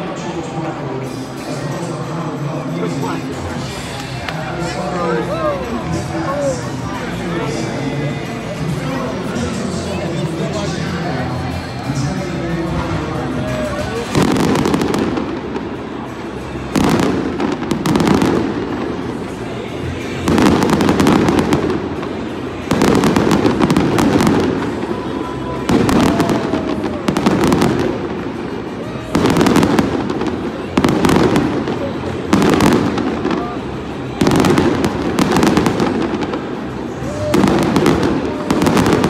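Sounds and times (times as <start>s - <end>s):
fireworks bangs with rumbling echo: 12.7s - 39.0s.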